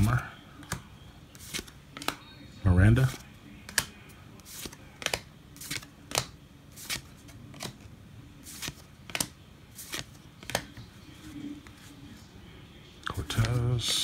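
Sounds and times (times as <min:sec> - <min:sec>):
cards flipped with papery swish: 0:00.0 - 0:02.2, 0:03.0 - 0:12.0.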